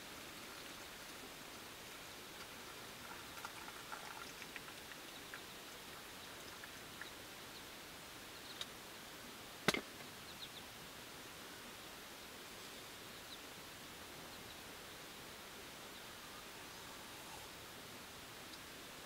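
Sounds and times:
rain pattering on tent: 0.0s - 7.3s.

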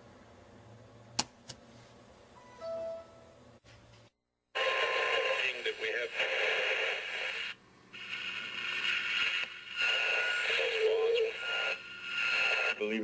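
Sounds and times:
garbled radio broadcast: 4.6s - 13.0s
radio static: 4.6s - 13.0s.

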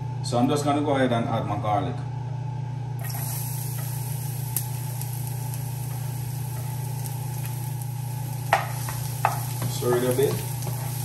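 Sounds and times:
garlic sizzling in oil: 3.0s - 11.0s.

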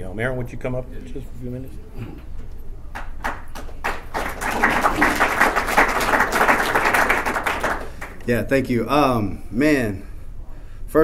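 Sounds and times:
audience applause: 3.0s - 8.2s.

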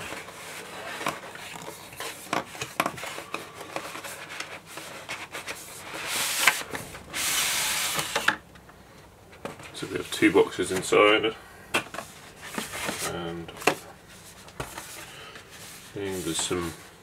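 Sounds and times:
cardboard sleeve sliding: 3.0s - 8.3s.

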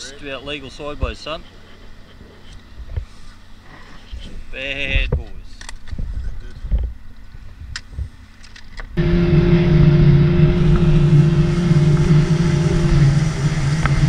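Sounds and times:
boat motor droning: 9.0s - 14.0s.

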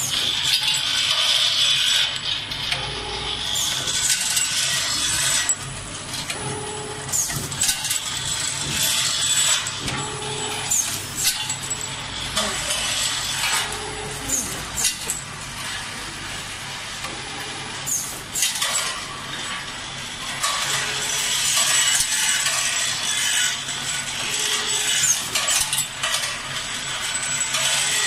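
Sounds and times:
workshop noise: 0.0s - 28.0s
machine hum: 2.5s - 18.4s.

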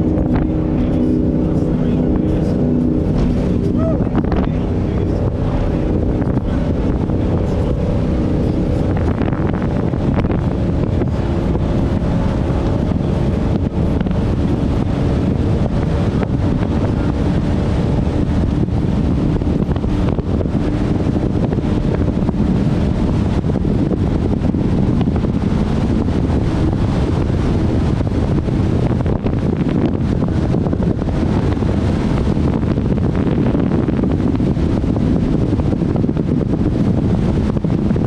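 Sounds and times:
powerboat engine drone: 0.0s - 38.0s
water rushing along hull: 0.0s - 38.0s
wind buffeting microphone: 0.0s - 38.0s.

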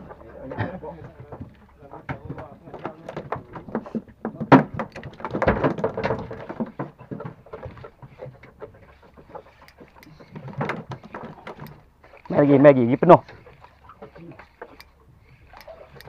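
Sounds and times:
fishing reel clicks and knocks: 9.6s - 12.4s, 14.6s - 16.0s.

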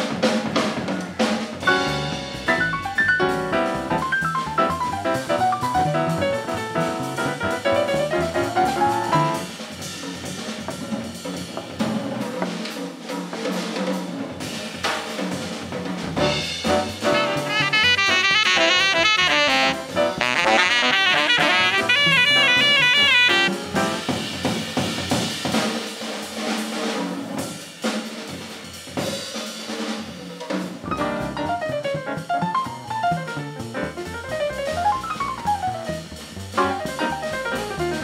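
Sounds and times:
piano: 0.0s - 12.7s, 16.0s - 25.4s, 30.6s - 38.0s
drum kit with snare and cymbals: 0.0s - 38.0s
upright bass: 1.8s - 9.5s, 16.2s - 23.7s
tenor saxophone fast runs: 17.0s - 23.6s.

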